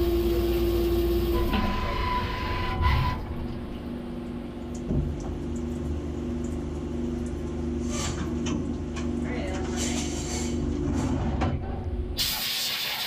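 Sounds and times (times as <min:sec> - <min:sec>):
mill humming: 0:00.0 - 0:07.8.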